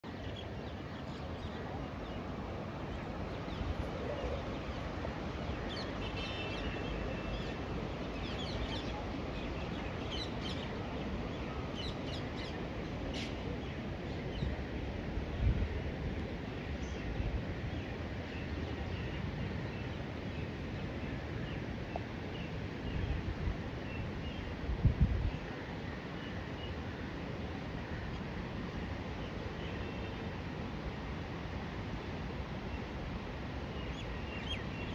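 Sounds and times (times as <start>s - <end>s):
river water rushing: 0.1s - 16.8s.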